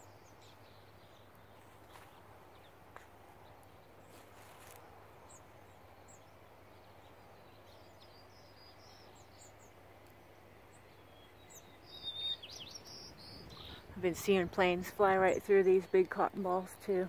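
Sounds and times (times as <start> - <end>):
faint bird chirps: 3.8 - 14.0.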